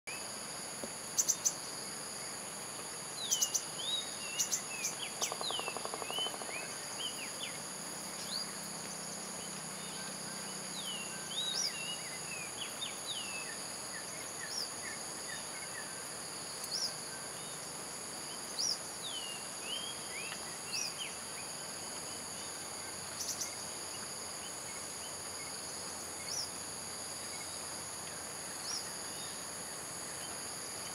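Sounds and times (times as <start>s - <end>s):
insects droning: 0.1s - 30.9s
bird calls: 3.2s - 7.5s.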